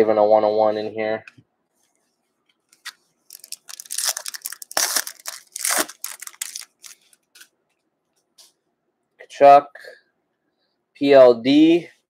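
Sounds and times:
foil wrapper crinkling: 2.7s - 7.5s.

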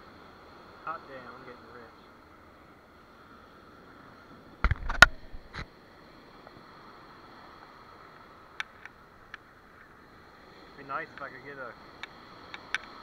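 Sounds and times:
light clicks: 12.0s - 13.0s.

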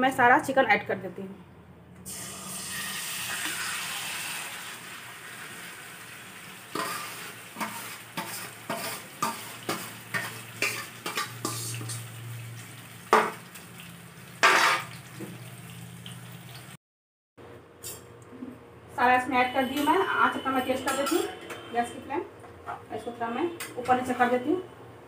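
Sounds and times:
chicken sizzling in hot oil: 2.1s - 16.8s.

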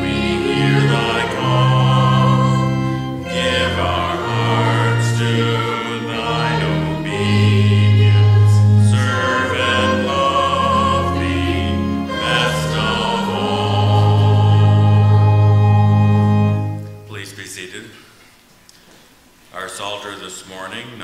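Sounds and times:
congregation singing a hymn: 0.0s - 17.0s
instrumental accompaniment: 0.0s - 17.6s.

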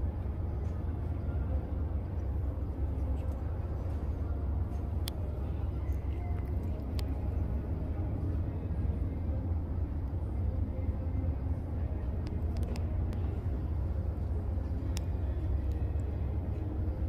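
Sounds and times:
city background: 0.0s - 17.0s
faint sharp clicks: 5.0s - 5.2s, 12.2s - 13.3s, 14.8s - 16.1s.

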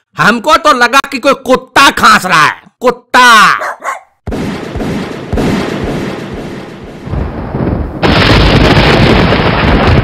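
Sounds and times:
rumbling explosion with deep thuds: 4.3s - 10.0s.

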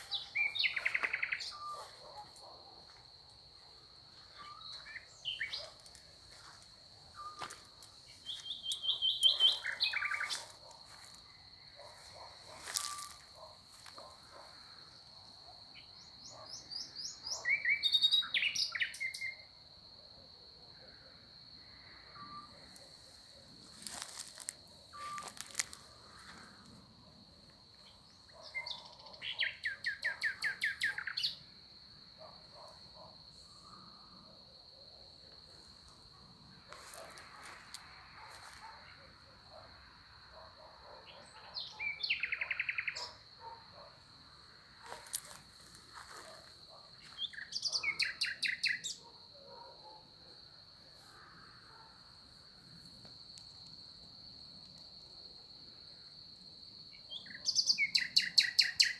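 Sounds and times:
songbird singing: 0.0s - 2.8s, 4.2s - 14.4s, 15.7s - 19.5s, 23.8s - 26.2s, 27.8s - 31.5s, 41.0s - 43.6s, 47.0s - 49.1s, 56.9s - 58.9s
high insect trill: 0.0s - 58.9s.

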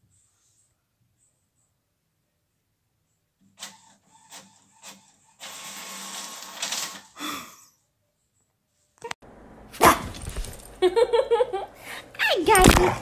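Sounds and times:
printer mechanism whirring: 3.4s - 7.2s.

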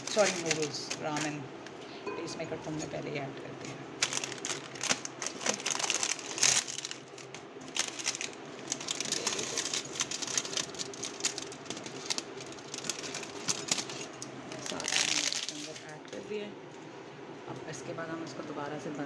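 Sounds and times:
plastic packet crinkling: 0.0s - 1.4s, 4.0s - 15.9s.

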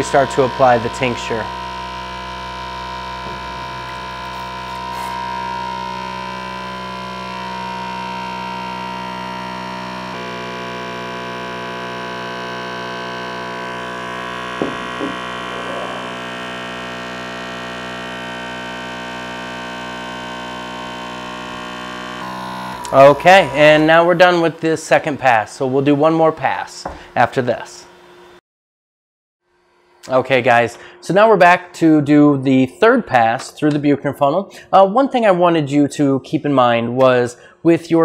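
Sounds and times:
vacuum pump humming: 0.0s - 28.2s.

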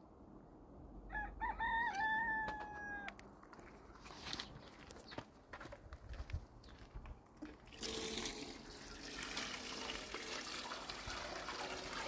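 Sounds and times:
faint footsteps scuffing: 2.5s - 7.6s.

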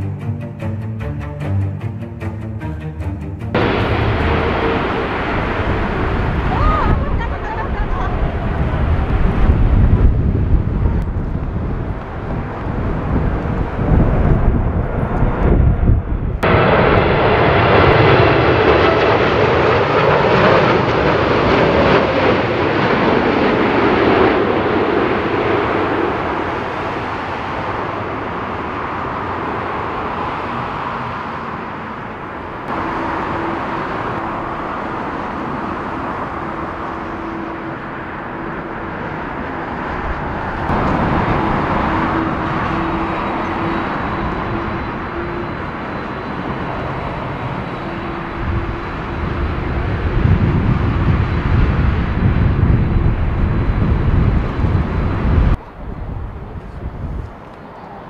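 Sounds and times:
wind rumble on microphone: 3.5s - 19.2s, 20.2s - 58.0s
constant hum: 3.5s - 19.3s
jet engine roar: 3.5s - 58.0s.

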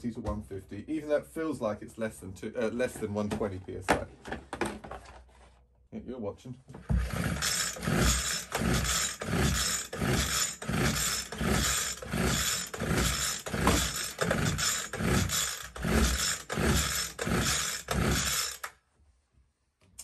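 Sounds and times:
recoil pull-start rope whirring: 6.8s - 18.8s.

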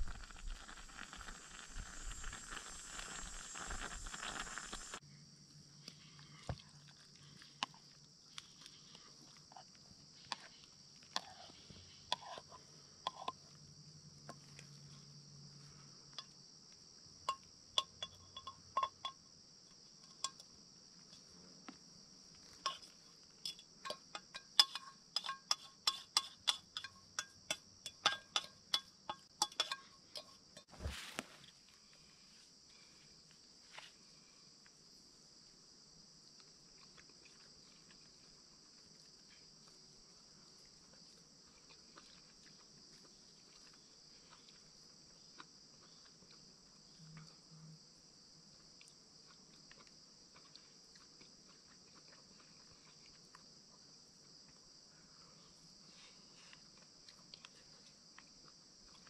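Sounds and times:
insects droning: 0.0s - 59.0s
metal cookware clinking: 23.9s - 30.4s.

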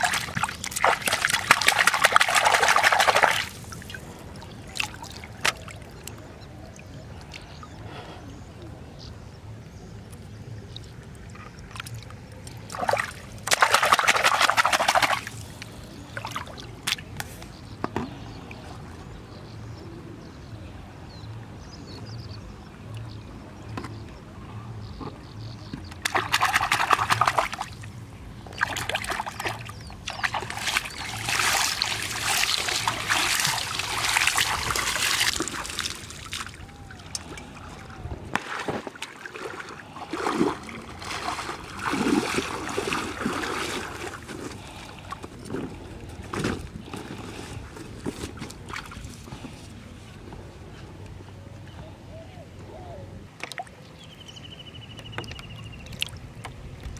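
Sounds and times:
river water splashing: 0.0s - 7.9s, 10.0s - 17.5s, 25.9s - 49.8s, 53.3s - 56.9s.

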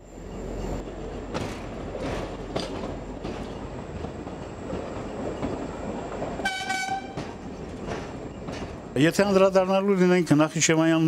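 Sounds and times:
train wheels rumbling on rails: 0.0s - 11.0s
wheels clicking over rail joints: 0.8s - 9.6s.

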